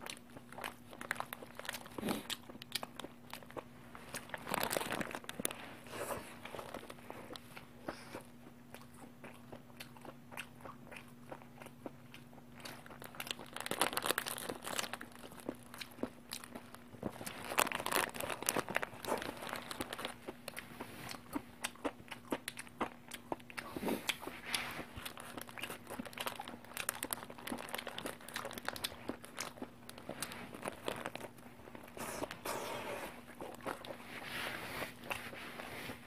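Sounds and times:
low steady hum: 0.0 - 36.0
person chewing: 0.0 - 36.0
paper wrapper crinkling: 4.1 - 7.5, 13.0 - 15.7, 16.5 - 20.2, 25.0 - 32.4.

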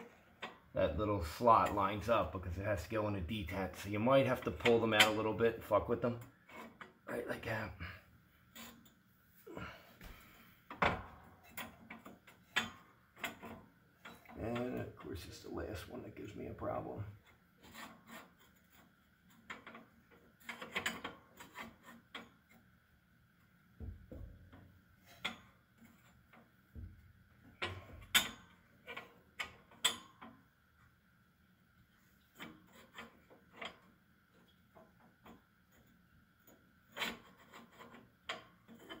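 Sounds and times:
woodstove baffle scraping: 0.0 - 22.7, 32.2 - 39.0.

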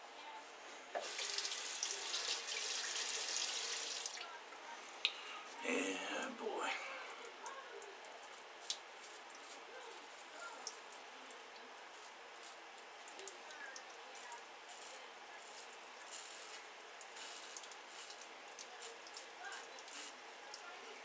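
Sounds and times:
razor scraping stubble: 14.7 - 16.6.

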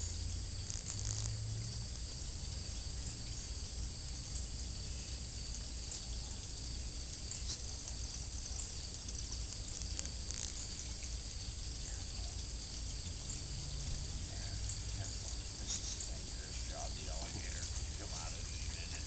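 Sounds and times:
insects droning: 0.0 - 19.0.

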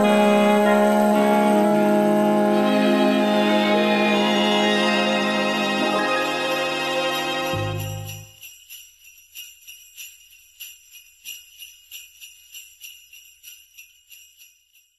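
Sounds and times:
jingle bells shaking: 3.4 - 14.9.

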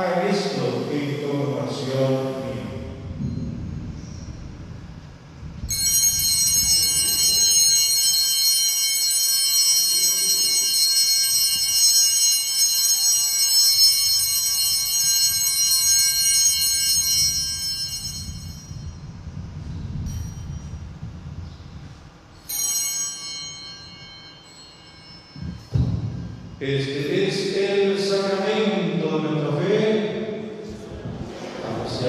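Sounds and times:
small bells ringing: 2.4 - 28.0.

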